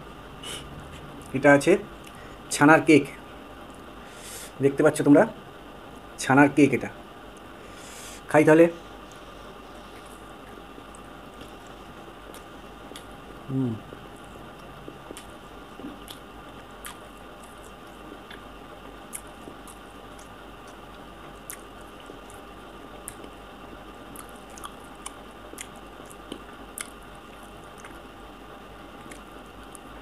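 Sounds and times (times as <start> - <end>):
faint steady hum: 0.0 - 30.0
person chewing: 9.8 - 28.1, 28.8 - 29.9.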